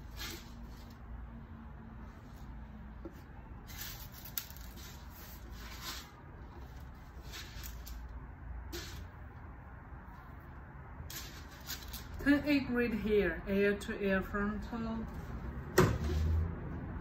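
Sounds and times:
wig hair rustling: 0:02.0 - 0:09.2, 0:10.2 - 0:12.3.

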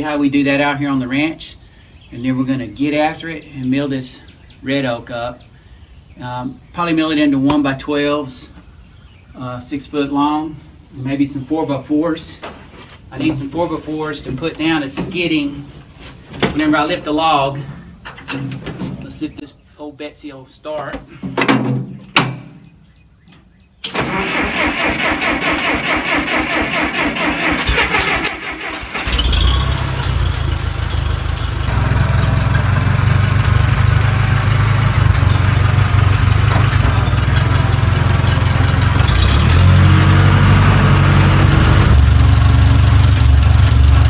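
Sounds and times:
tractor engine running: 0:23.8 - 0:44.0
tractor starter cranking: 0:23.8 - 0:44.0.

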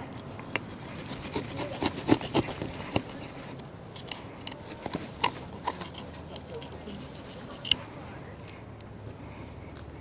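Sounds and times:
knife sawing through fish bones: 0:00.7 - 0:03.4, 0:05.2 - 0:07.8.

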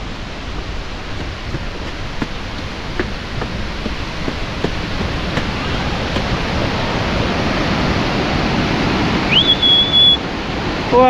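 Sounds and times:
waterfall rushing: 0:00.0 - 0:11.0
high whistle: 0:09.2 - 0:10.3.

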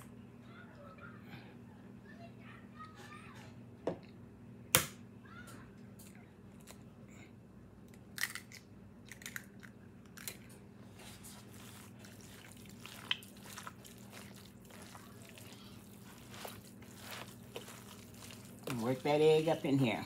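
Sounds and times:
eggs cracking: 0:07.9 - 0:10.6, 0:11.4 - 0:20.0
hands squishing moist mixture: 0:10.8 - 0:20.0.

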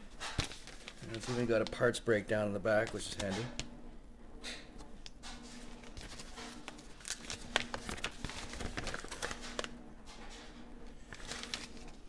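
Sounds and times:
paper rustling and crinkling: 0:00.1 - 0:01.9, 0:02.8 - 0:03.6, 0:05.4 - 0:12.0.

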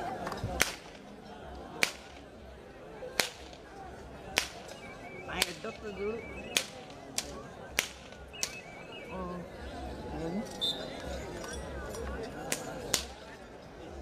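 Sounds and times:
sharp whip cracks: 0:03.2 - 0:03.6, 0:06.5 - 0:08.6.

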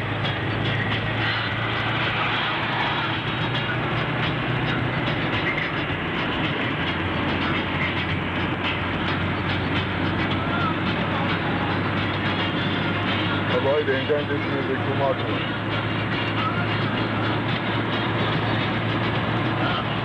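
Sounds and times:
car engine hum: 0:00.0 - 0:20.0
road noise: 0:00.0 - 0:20.0.

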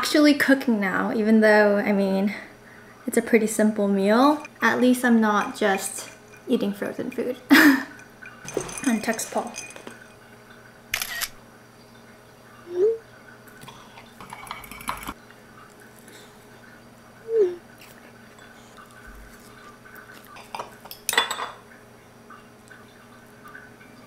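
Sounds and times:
cutlery scraping on plate: 0:14.2 - 0:15.2.

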